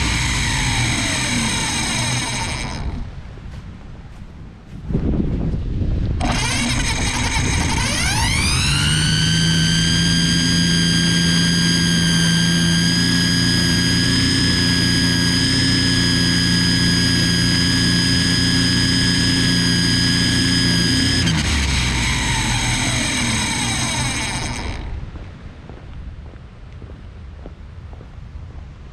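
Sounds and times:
string trimmer whine: 0.0s - 3.7s, 6.1s - 25.2s.

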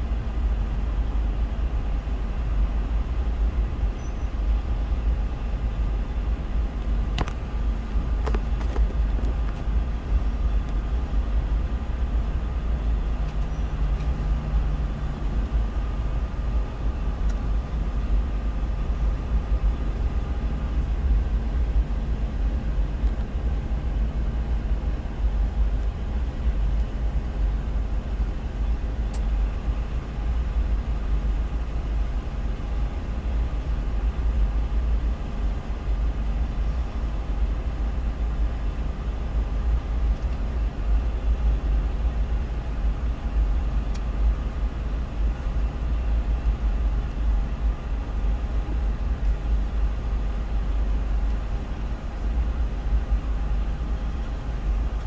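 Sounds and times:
freight train rumbling: 0.0s - 55.0s.

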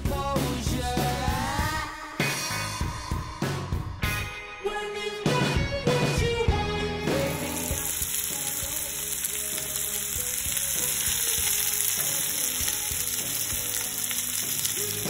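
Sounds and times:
fish sizzling in a pan: 7.2s - 15.0s.

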